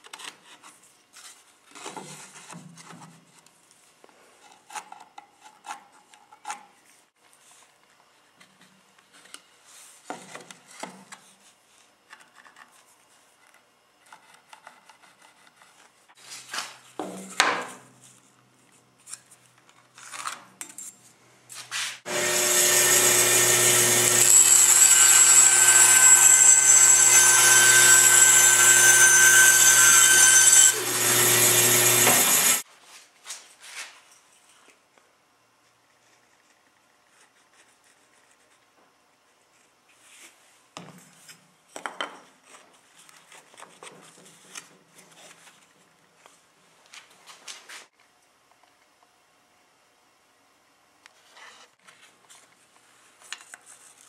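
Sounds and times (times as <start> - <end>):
band saw cutting wood: 22.1 - 32.6.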